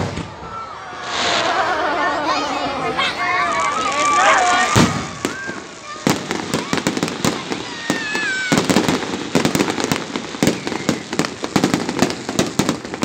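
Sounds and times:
fireworks crackling and popping: 0.0 - 13.0.

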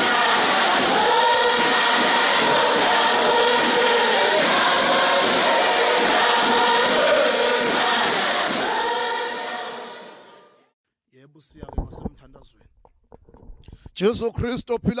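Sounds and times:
choir singing: 0.0 - 10.7.

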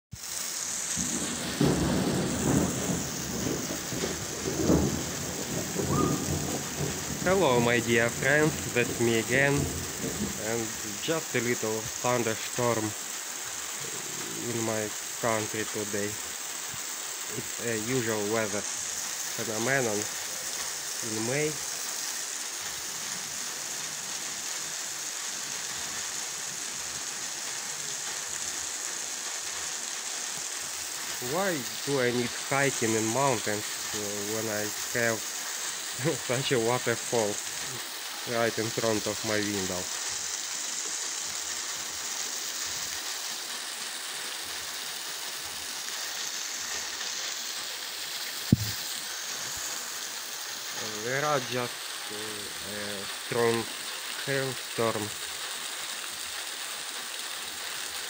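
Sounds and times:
heavy rain falling: 0.1 - 58.0
water pouring off a roof: 0.1 - 58.0
low rumbles of thunder: 1.0 - 10.8.

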